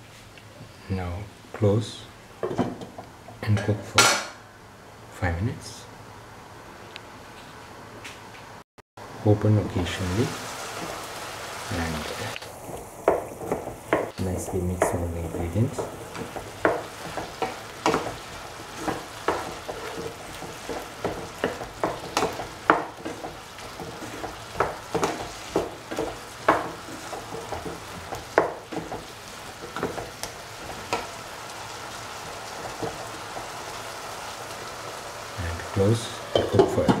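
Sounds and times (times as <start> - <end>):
vegetables sizzling in oil: 9.0 - 37.0
utensil scraping a pan: 14.5 - 31.2.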